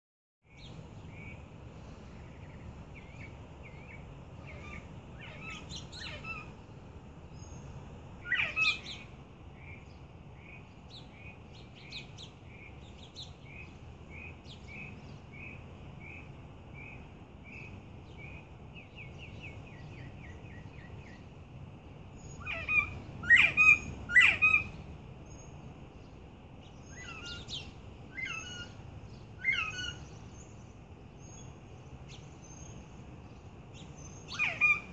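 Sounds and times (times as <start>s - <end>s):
sharp quail calls: 8.2s - 9.1s, 22.3s - 24.8s, 29.4s - 30.1s, 34.2s - 34.9s
quail chicks soft calls: 22.2s - 25.5s, 26.6s - 30.6s, 33.8s - 34.9s.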